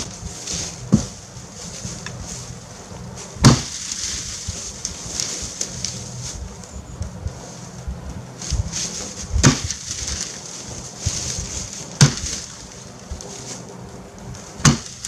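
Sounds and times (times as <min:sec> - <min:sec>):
footsteps crunching dry leaves: 0:00.0 - 0:15.0
low steady hum: 0:00.0 - 0:15.0
sharp thumps: 0:03.3 - 0:13.2, 0:14.4 - 0:15.0.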